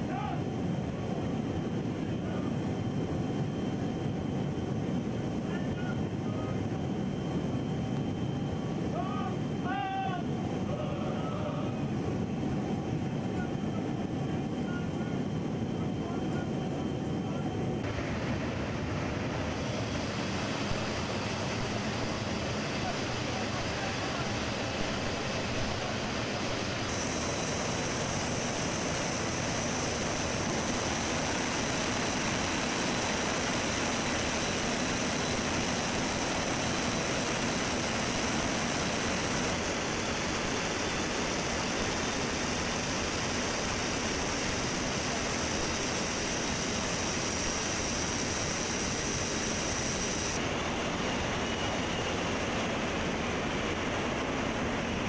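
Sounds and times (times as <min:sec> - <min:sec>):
faint high whine: 0:00.0 - 0:55.0
turbofan engine noise: 0:00.0 - 0:55.0
rushing wind: 0:17.6 - 0:55.0.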